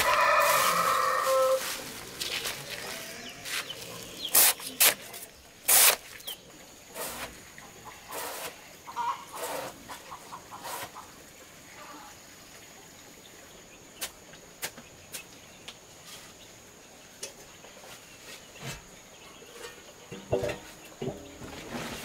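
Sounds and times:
chickens clucking: 0.0 - 5.4, 6.1 - 12.2.

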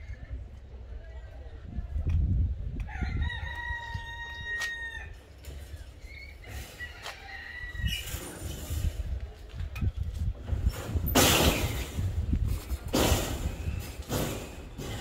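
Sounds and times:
wind rumble on microphone: 0.0 - 15.0
rooster crowing: 2.9 - 5.2.

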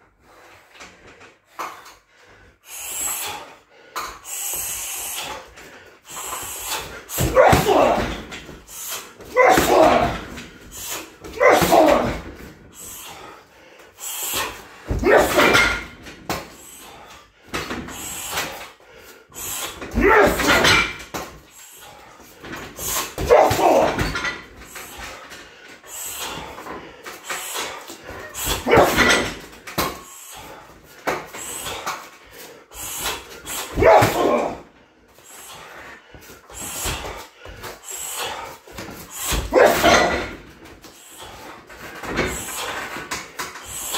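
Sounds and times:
person shouting or grunting: 7.1 - 8.4, 9.3 - 10.4, 11.3 - 12.4, 14.9 - 15.9, 19.9 - 20.9, 23.1 - 24.3, 28.4 - 29.3, 33.6 - 34.7, 39.3 - 40.4.

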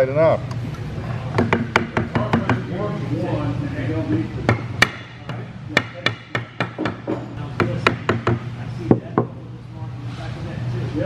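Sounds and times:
mallet tapping on wood: 4.5 - 9.3.

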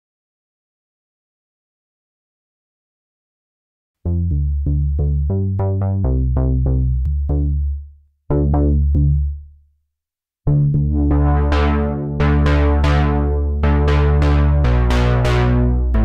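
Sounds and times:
synthesizer bass riff: 4.1 - 9.4, 10.5 - 16.0.

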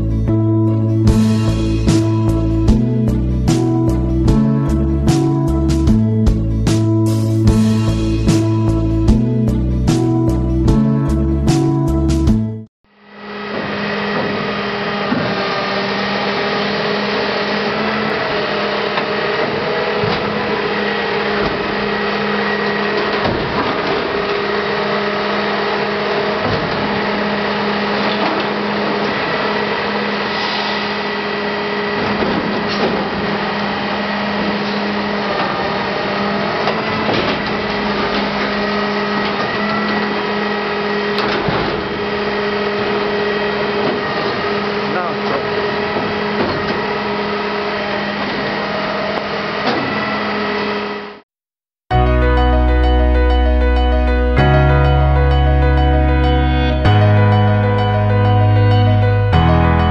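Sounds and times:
garbage truck hydraulic hum: 13.0 - 51.2.

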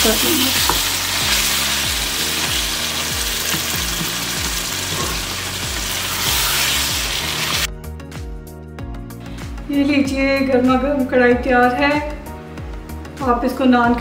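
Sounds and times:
chicken sizzling in a frying pan: 0.0 - 7.7
background music with low beat: 0.0 - 14.0.

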